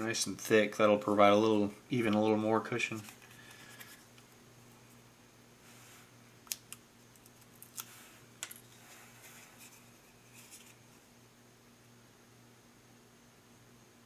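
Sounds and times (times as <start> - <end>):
low steady hum: 0.0 - 14.0
soft paper rustles: 2.9 - 4.1, 7.1 - 11.1.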